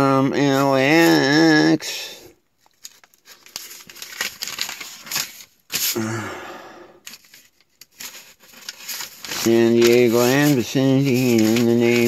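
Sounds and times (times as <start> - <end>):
paper map crinkling: 2.6 - 6.0, 7.0 - 12.0.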